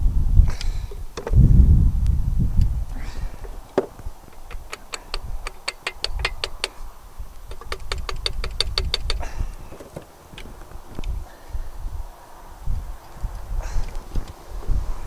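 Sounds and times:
hammer tapping metal fitting: 3.8s - 6.8s, 7.5s - 9.9s.

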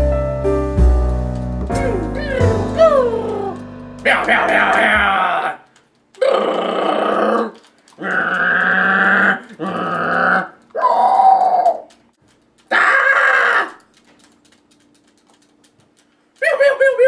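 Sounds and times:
man making wordless mouth noises: 1.8s - 10.6s.

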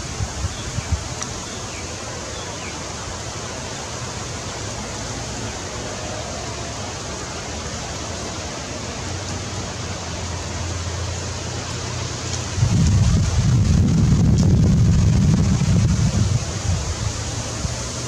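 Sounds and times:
outdoor background hiss: 0.0s - 18.0s
low hum: 12.6s - 16.8s.

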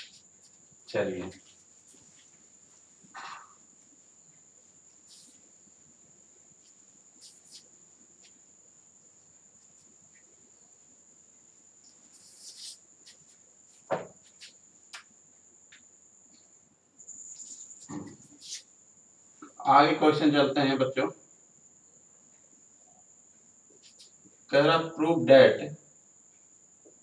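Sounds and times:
faint high-pitched whine: 0.0s - 27.0s
duster wiping whiteboard: 12.1s - 14.5s, 17.4s - 18.7s.

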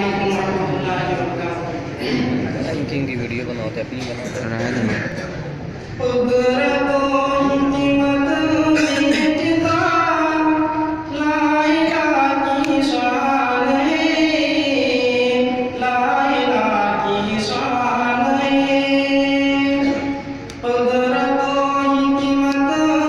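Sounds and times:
man chanting: 6.0s - 23.0s.

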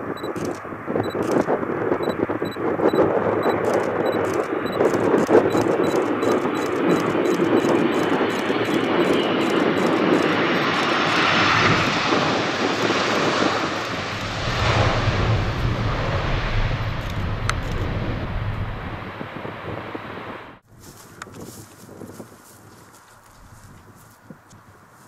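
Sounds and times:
jet engine noise: 0.0s - 25.0s
deep rumble: 9.4s - 20.6s.

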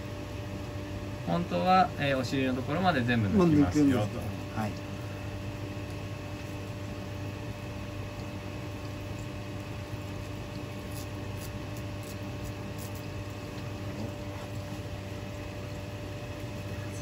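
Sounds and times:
room equipment humming: 0.0s - 17.0s
faint ticks of peeling fish skin: 8.0s - 13.8s.

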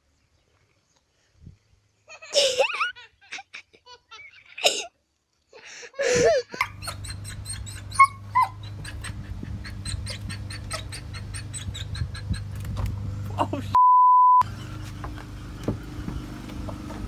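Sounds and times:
dog yelping: 6.8s - 12.4s
dog whining: 7.7s - 9.1s.

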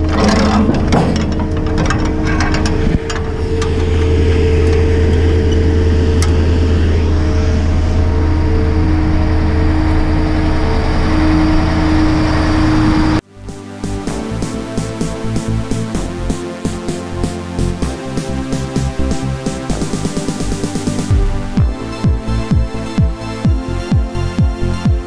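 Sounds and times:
diesel engine idling: 0.0s - 16.3s.

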